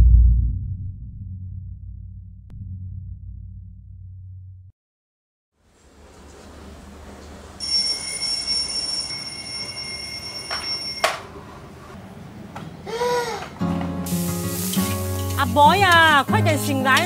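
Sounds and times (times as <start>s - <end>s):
alarm clock ringing: 7.6s - 11.4s.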